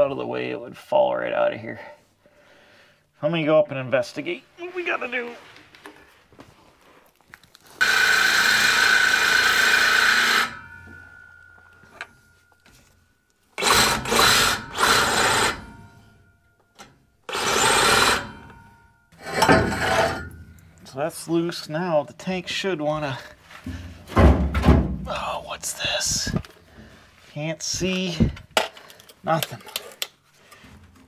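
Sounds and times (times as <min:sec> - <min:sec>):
cordless power tool running: 0:07.8 - 0:10.6, 0:13.6 - 0:15.6, 0:17.3 - 0:18.4.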